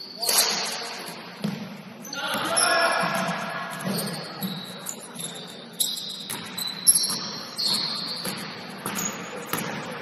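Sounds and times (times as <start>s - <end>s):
sneakers squeaking: 0.0s - 10.0s
basketball bouncing on court: 1.4s - 4.7s, 6.2s - 10.0s.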